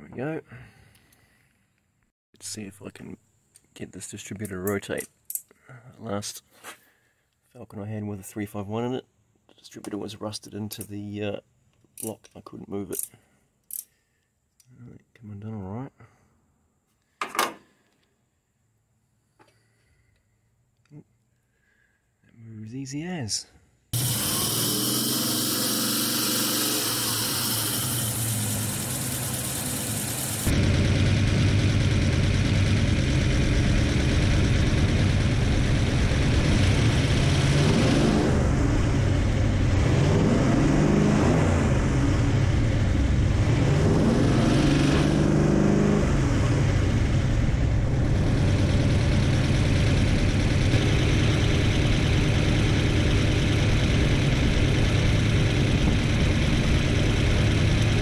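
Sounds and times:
vee-eight engine idling: 0:25.9 - 0:37.2, 0:46.7 - 0:58.0.

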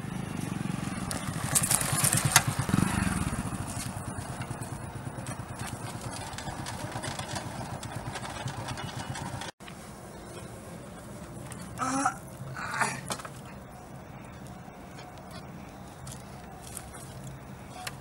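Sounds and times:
motorcycle engine passing: 0:00.0 - 0:09.5.

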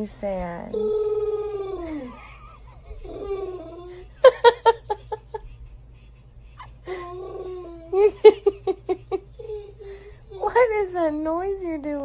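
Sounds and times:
dog whining: 0:00.7 - 0:04.0, 0:07.0 - 0:08.0
person laughing: 0:01.6 - 0:05.6, 0:06.6 - 0:10.0.

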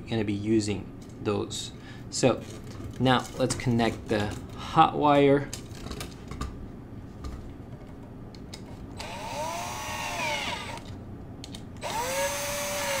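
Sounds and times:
cordless drill motor whirring: 0:09.0 - 0:10.9, 0:11.8 - 0:13.0.

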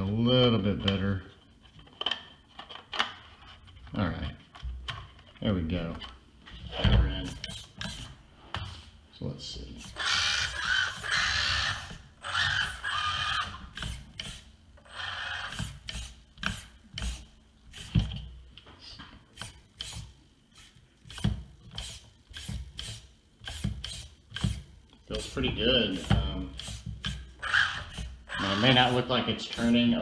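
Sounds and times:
small electric motors whirring: 0:09.8 - 0:18.0, 0:19.3 - 0:30.0
tyres scrubbing: 0:24.4 - 0:30.0.

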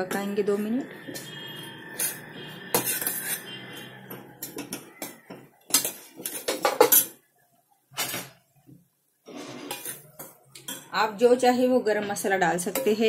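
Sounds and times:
metal ladle scraping a pan: 0:00.9 - 0:07.2, 0:09.3 - 0:10.9.

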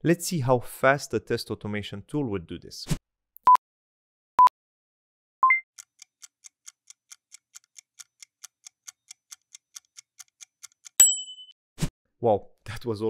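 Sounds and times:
short electronic countdown beeps: 0:05.4 - 0:05.6
stopwatch ticking: 0:05.8 - 0:11.0.

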